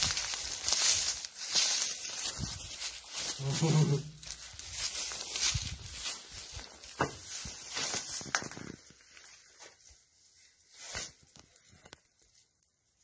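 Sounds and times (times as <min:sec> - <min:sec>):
footsteps in dry grass: 0:00.0 - 0:11.8.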